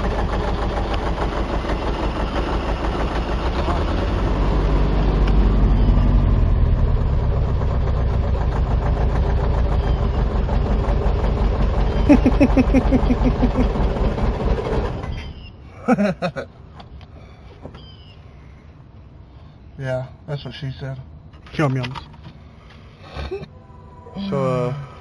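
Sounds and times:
engine running with knock: 0.0s - 15.3s.

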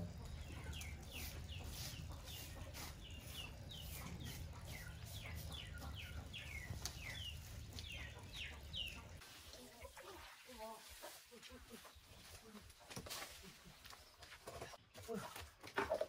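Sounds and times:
chicks peeping: 0.0s - 9.2s.

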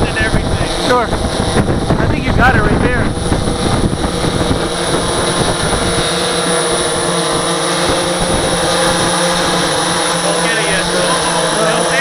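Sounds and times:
multirotor drone buzz: 0.0s - 12.0s.

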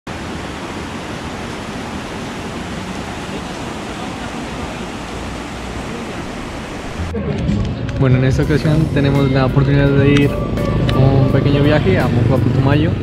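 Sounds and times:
river rushing over rapids: 0.1s - 7.2s.

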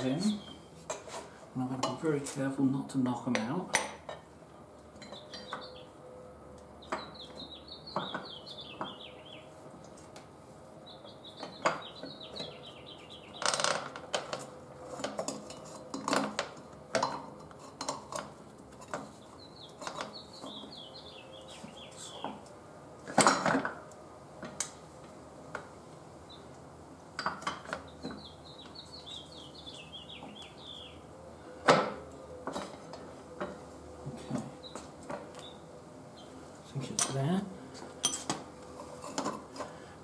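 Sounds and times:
bird chirping: 0.0s - 0.7s, 5.0s - 6.0s, 6.8s - 9.5s, 10.8s - 13.6s, 19.1s - 22.4s, 27.7s - 31.1s, 33.4s - 36.4s
metallic clinks and knocks: 38.0s - 38.4s.

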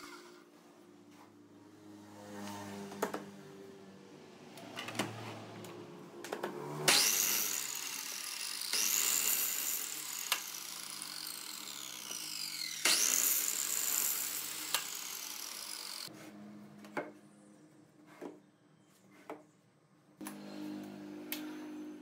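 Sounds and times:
miter saw motor whining: 6.9s - 16.1s.

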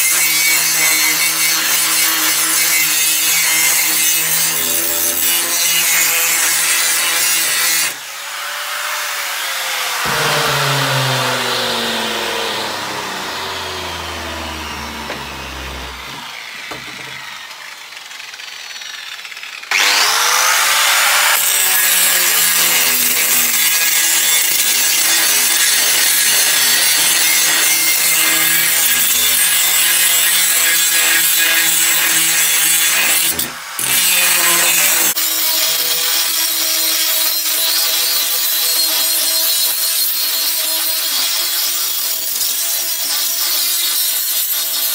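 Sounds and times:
angle grinder grinding steel: 0.0s - 44.9s
motor winding down whine: 10.0s - 17.7s.

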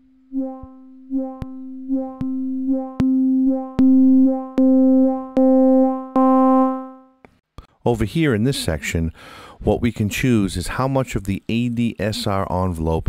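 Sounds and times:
synthesizer repeating one note: 0.0s - 7.1s.

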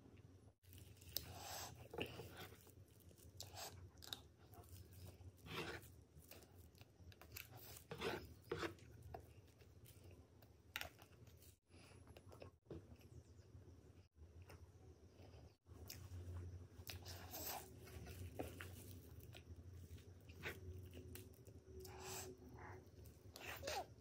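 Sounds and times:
spoon scooping cake: 4.2s - 9.6s.

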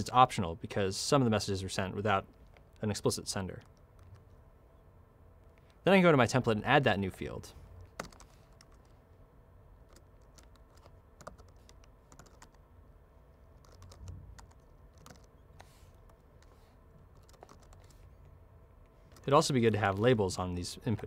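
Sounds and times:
low steady hum: 0.0s - 21.0s
typing on computer keyboard: 8.0s - 8.9s, 9.9s - 12.6s, 13.6s - 16.5s, 17.1s - 18.0s.

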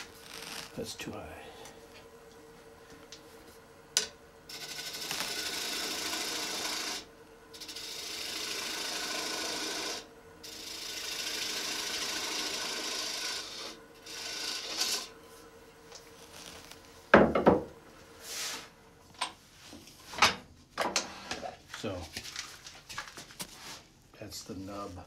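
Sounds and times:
lathe humming: 0.0s - 17.7s
gouge cutting wood on lathe: 4.5s - 15.1s.

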